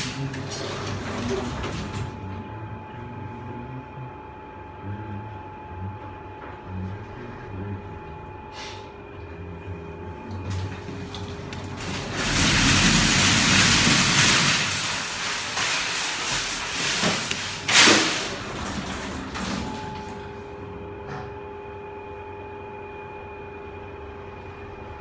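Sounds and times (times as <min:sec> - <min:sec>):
lift doors sliding: 0:00.0 - 0:02.4, 0:10.4 - 0:20.4.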